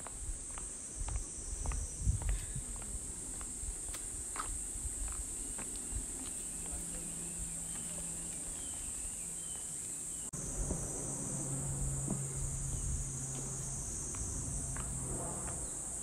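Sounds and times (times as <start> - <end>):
insects shrilling: 3.5 - 16.0
low steady hum: 6.6 - 16.0.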